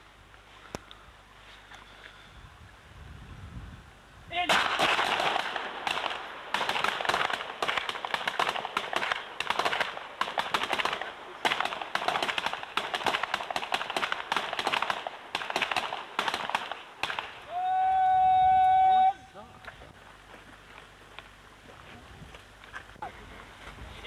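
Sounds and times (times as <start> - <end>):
pistols firing rapidly: 4.5 - 17.4.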